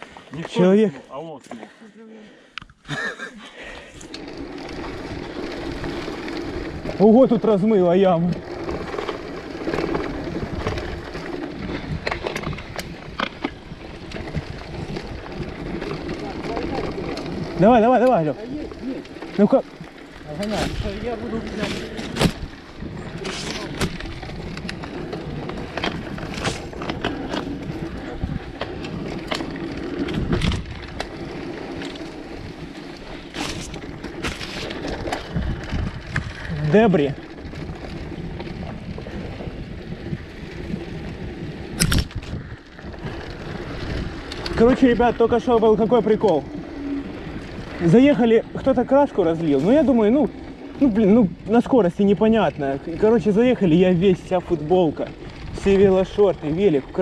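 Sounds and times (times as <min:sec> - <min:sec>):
bike tyres and rushing air: 0:03.5 - 0:57.0
bike knocks and rattles: 0:08.2 - 0:38.9.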